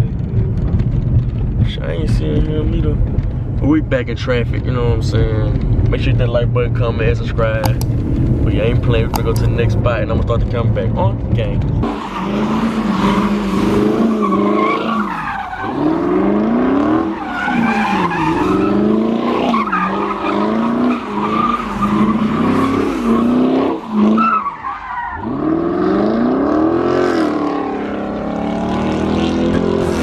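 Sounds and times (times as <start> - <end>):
car engine revving: 0.0 - 30.0
tires squealing: 11.6 - 30.0.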